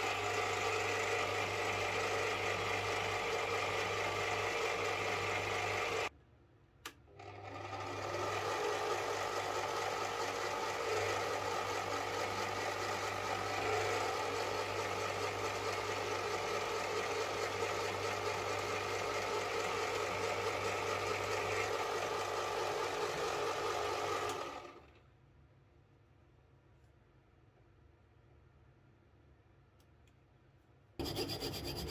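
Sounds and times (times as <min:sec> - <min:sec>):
lathe motor humming: 0:00.0 - 0:06.1, 0:07.2 - 0:24.9, 0:31.0 - 0:31.9.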